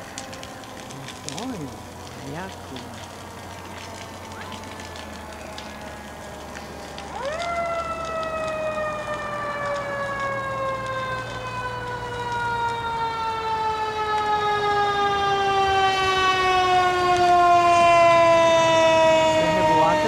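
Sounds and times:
fire engine siren wailing: 0.0 - 20.0.

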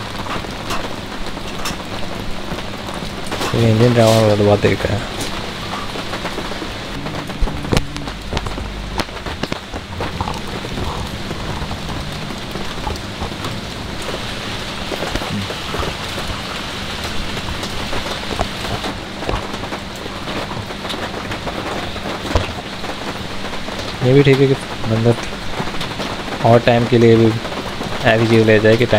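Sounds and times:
rain pattering: 0.0 - 28.9
faint low hum: 6.4 - 18.9.

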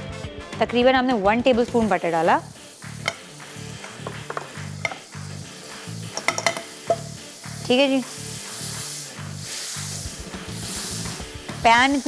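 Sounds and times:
background music with a steady beat: 0.0 - 12.0
butter sizzling in a frying pan: 1.5 - 12.0
spatula tapping a pan: 2.9 - 8.2.

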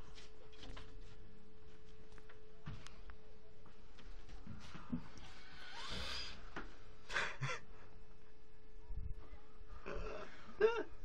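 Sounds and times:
faint steady hum: 0.0 - 11.0
person laughing: 7.1 - 7.8, 9.9 - 11.0.

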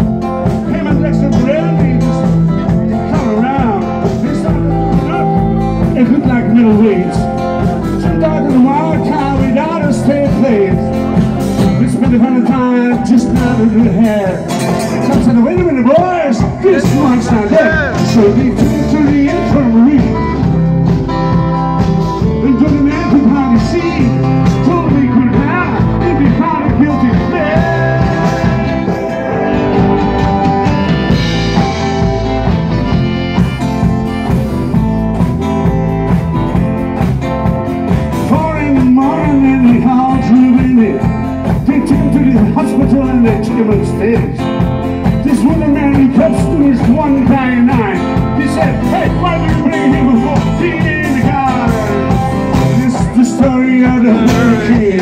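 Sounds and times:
live rock band playing: 0.0 - 55.0.

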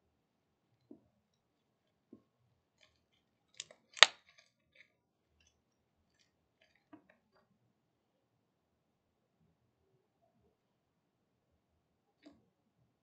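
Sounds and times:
slime sticky clicks: 3.6 - 4.2
slime popping: 3.6 - 4.3.

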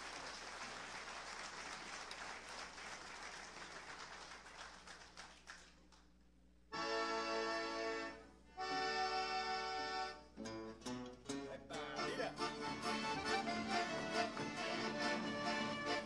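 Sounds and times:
audience applause: 0.0 - 6.0
band playing held chord: 11.7 - 16.0.

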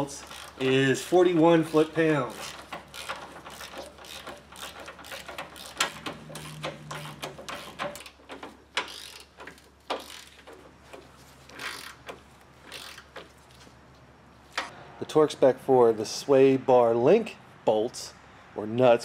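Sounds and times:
ratchet wrench clicking: 0.0 - 13.4.

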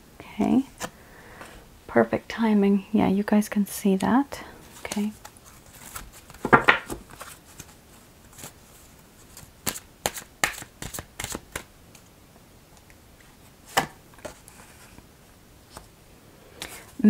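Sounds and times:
cards shuffling clicks: 9.3 - 12.0
card snaps and flicks: 9.6 - 11.6.

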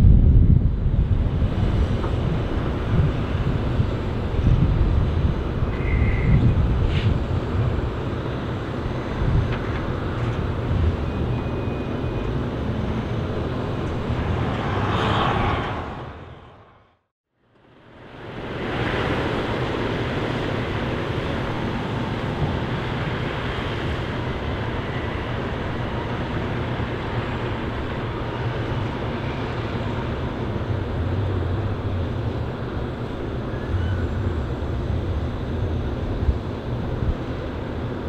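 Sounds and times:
diesel truck driving past: 11.2 - 17.0.

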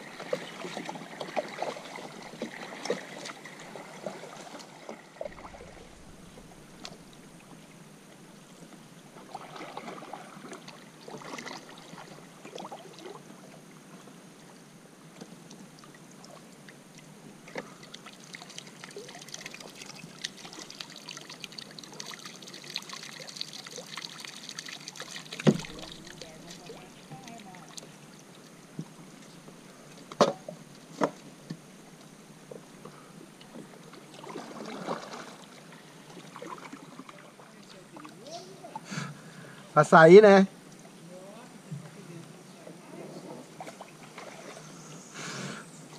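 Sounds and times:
paddle strokes in water: 0.0 - 14.1, 15.2 - 39.5, 41.7 - 45.9
water dripping off paddle: 17.5 - 29.3.

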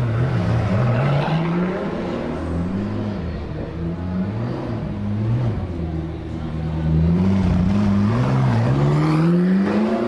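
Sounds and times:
sports car engines idling: 2.3 - 8.2.

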